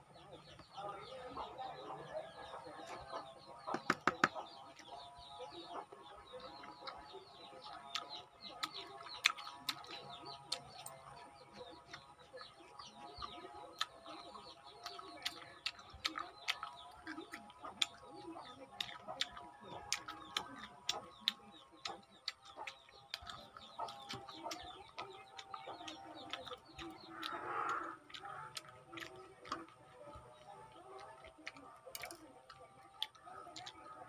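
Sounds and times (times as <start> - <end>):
birds chirping: 0.0 - 34.0
wet mouth clicks from chewing: 2.4 - 34.0.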